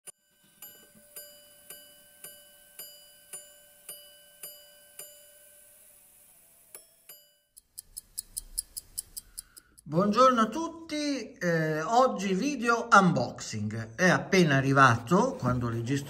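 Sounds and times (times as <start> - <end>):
metallic clock ticks: 6.7 - 9.9.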